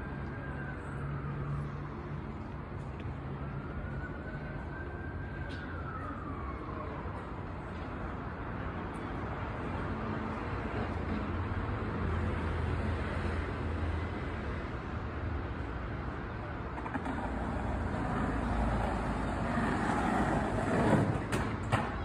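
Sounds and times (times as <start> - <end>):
traffic rumble: 0.0 - 22.0.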